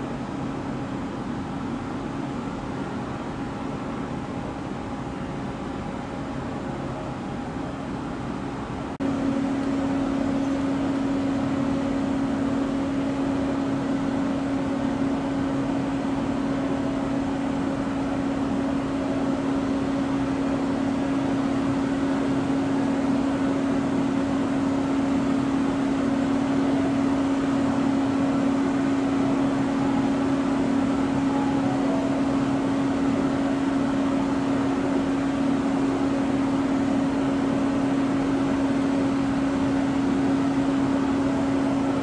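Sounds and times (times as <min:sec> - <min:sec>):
jet airliner droning: 0:09.0 - 0:42.0.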